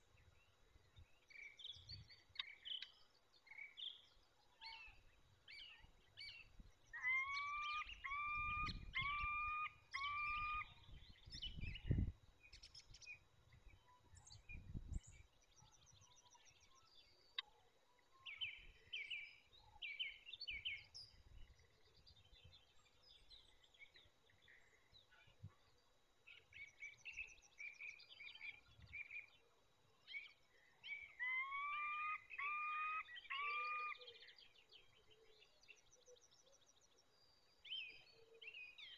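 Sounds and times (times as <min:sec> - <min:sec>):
songbirds chirping faintly: 0:00.0 - 0:38.9
falcon calling: 0:07.0 - 0:10.7, 0:31.2 - 0:34.0.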